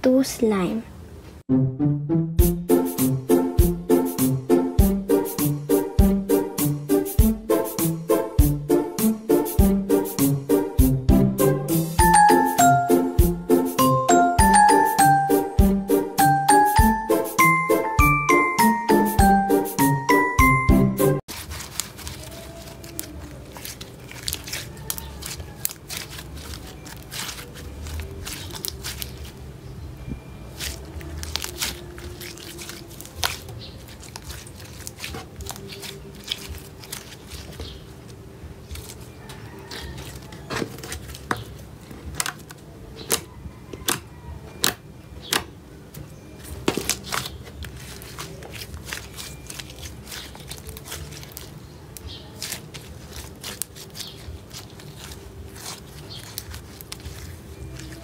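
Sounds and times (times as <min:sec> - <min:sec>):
slime squishing with wet pops: 0:21.3 - 0:29.4, 0:30.5 - 0:37.8, 0:46.6 - 0:58.0.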